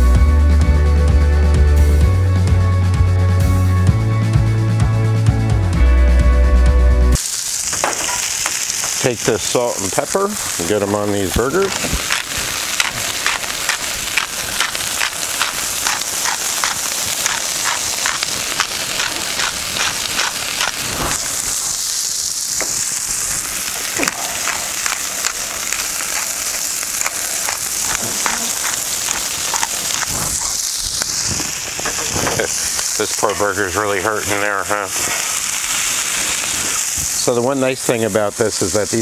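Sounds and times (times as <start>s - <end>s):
meat sizzling on a griddle: 7.2s - 39.0s
fat popping: 7.5s - 9.1s, 11.6s - 33.0s.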